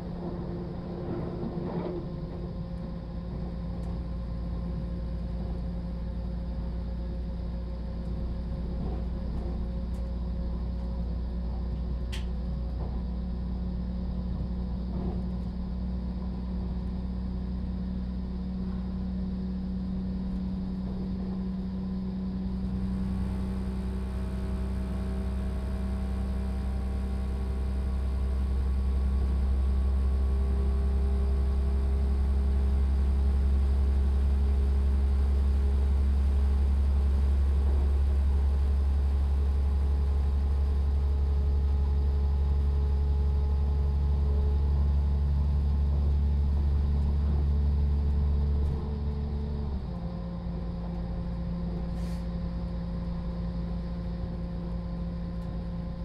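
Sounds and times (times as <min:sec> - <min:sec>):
train running noise: 0:00.0 - 0:05.7
diesel engine drone: 0:00.0 - 0:56.0.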